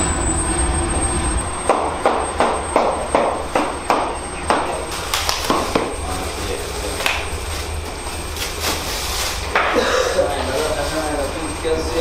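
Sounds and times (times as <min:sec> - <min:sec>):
steady low rumble: 0:00.0 - 0:09.6
sharp knocks: 0:01.7 - 0:06.0.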